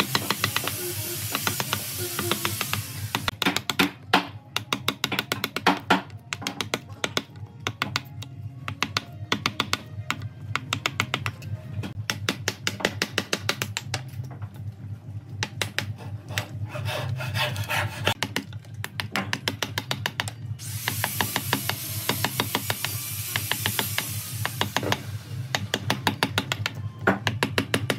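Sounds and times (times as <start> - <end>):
mallet striking steel chisel: 0.0 - 0.8, 12.0 - 14.0, 18.2 - 27.9.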